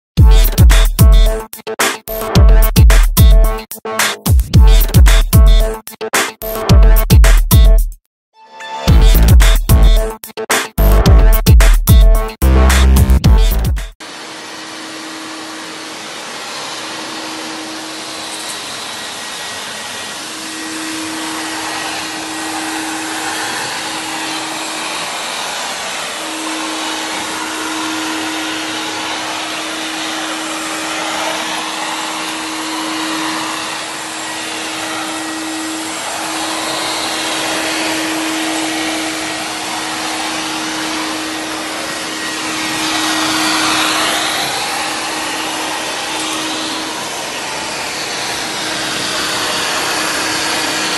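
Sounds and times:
vacuum nozzle on concrete floor: 0:14.0 - 0:50.9.

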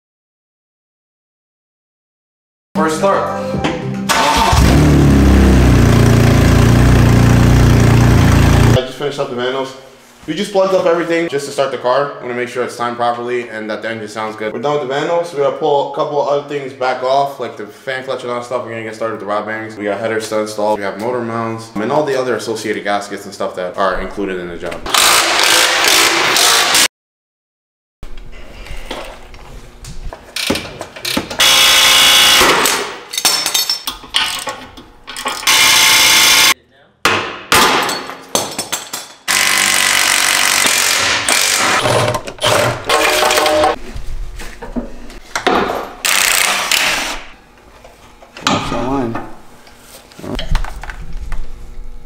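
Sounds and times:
air impact wrench hammering: 0:05.5 - 0:08.8, 0:24.9 - 0:26.9, 0:30.4 - 0:33.0, 0:35.4 - 0:36.5, 0:39.3 - 0:43.8, 0:45.9 - 0:47.3
tool clatter: 0:40.6 - 0:43.8.

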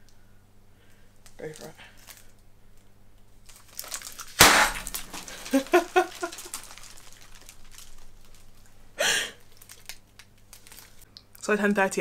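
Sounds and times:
party popper bang: 0:04.4 - 0:05.5
burst of laughter: 0:05.3 - 0:06.6.

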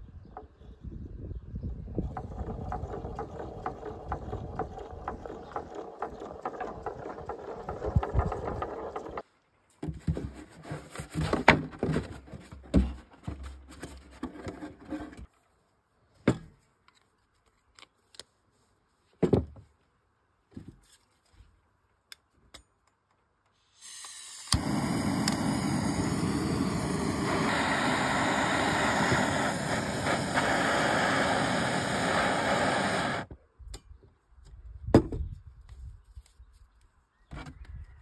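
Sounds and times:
bottle windmill rattling and ticking: 0:01.9 - 0:09.2.

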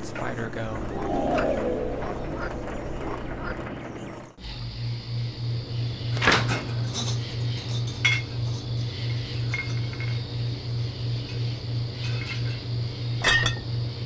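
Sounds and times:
pulsing low hum: 0:00.7 - 0:05.9
glass and dishes clinking: 0:07.0 - 0:08.7, 0:13.2 - 0:13.6.

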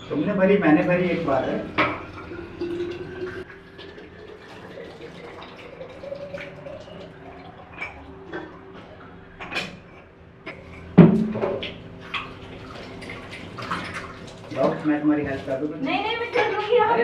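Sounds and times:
water pouring into a bottle: 0:01.2 - 0:08.8
kitchenware clinking and knocking: 0:01.7 - 0:03.4.

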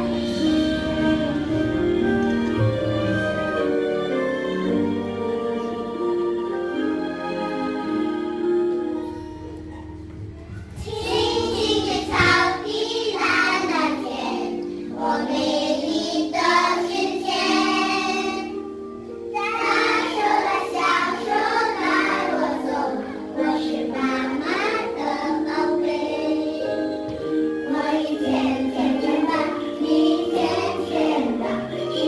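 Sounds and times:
instrumental backing music: 0:00.0 - 0:32.0
children singing: 0:10.6 - 0:32.0.

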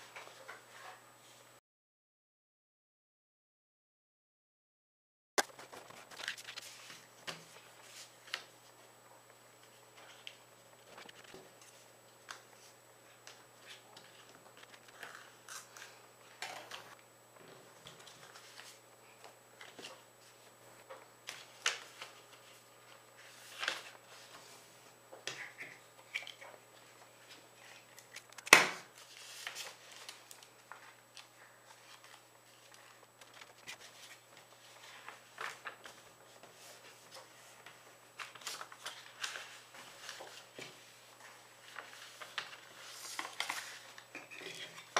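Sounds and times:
paper rustling and crinkling: 0:05.4 - 0:08.9, 0:09.6 - 0:17.0, 0:17.8 - 0:20.6, 0:21.2 - 0:44.9.

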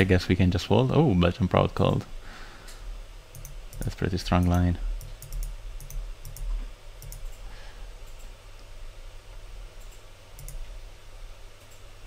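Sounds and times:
low steady hum: 0:00.0 - 0:12.0
computer mouse clicks: 0:03.3 - 0:07.4, 0:09.8 - 0:10.6.

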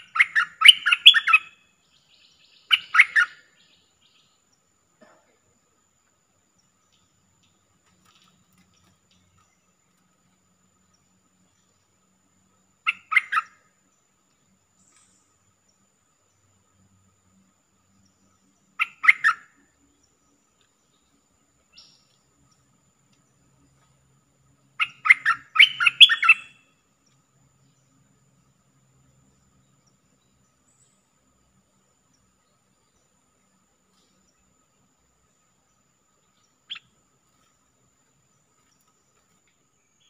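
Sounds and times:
bird calling: 0:00.0 - 0:04.3, 0:12.8 - 0:13.6, 0:18.8 - 0:19.6, 0:24.8 - 0:26.6.

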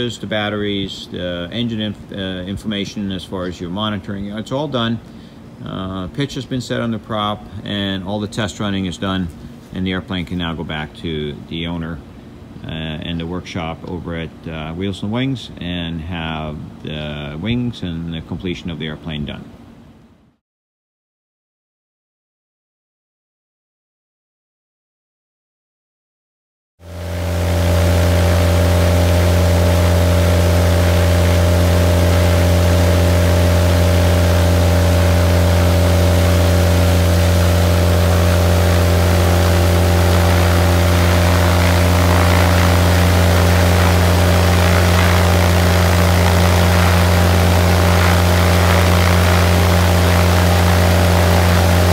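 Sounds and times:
aircraft engine running: 0:26.8 - 0:51.9.

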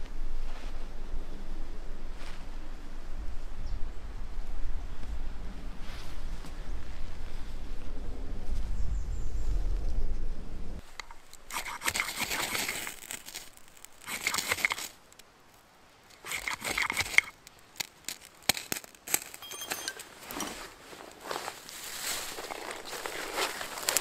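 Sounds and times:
sharp clicks: 0:10.9 - 0:15.3, 0:16.1 - 0:20.1
knife shaving wood: 0:11.1 - 0:15.0, 0:16.1 - 0:19.4.

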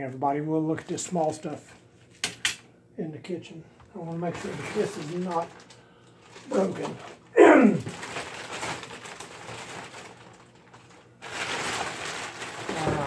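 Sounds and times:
plastic bag rustling: 0:04.0 - 0:13.0.

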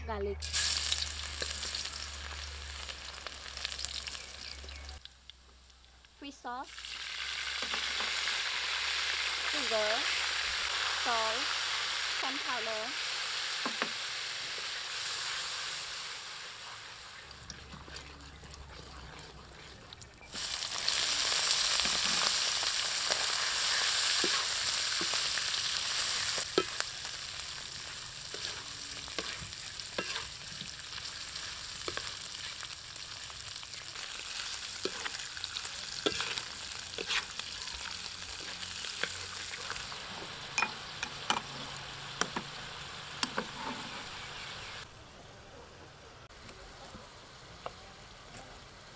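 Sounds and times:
oil sizzling in a wok: 0:00.4 - 0:44.9
spatula scraping a wok: 0:17.5 - 0:32.7, 0:33.9 - 0:42.3, 0:43.2 - 0:44.4.

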